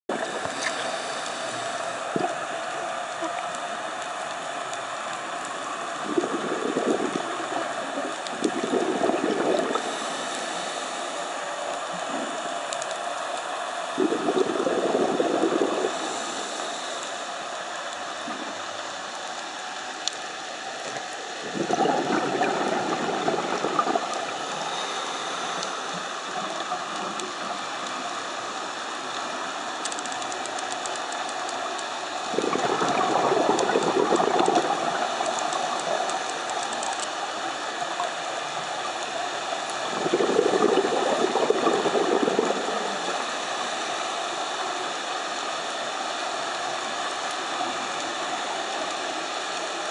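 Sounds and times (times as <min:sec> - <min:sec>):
exhaled bubbles underwater: 0:00.1 - 0:04.1, 0:04.7 - 0:10.8, 0:13.8 - 0:17.0, 0:20.9 - 0:29.6, 0:31.9 - 0:45.1
steady regulator hiss: 0:00.1 - 0:49.9.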